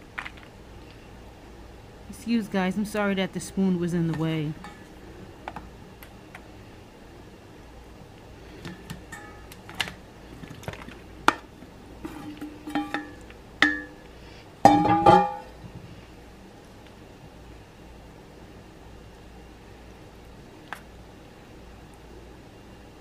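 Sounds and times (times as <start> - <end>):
glass bowl clinking on foil pan: 12.1 - 14.0, 14.7 - 15.5.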